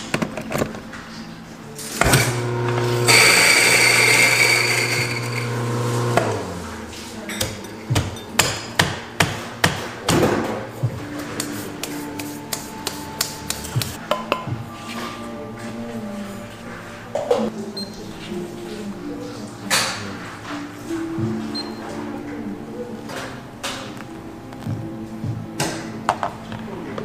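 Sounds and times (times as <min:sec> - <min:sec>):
electric coffee grinder running: 0:02.1 - 0:06.6.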